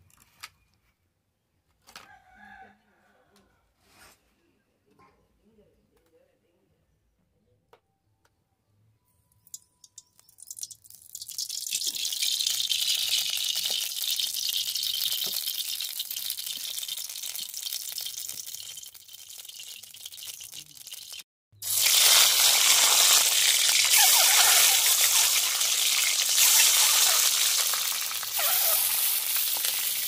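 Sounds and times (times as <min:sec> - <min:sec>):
oil sizzling in a wok: 0:09.8 - 0:30.0.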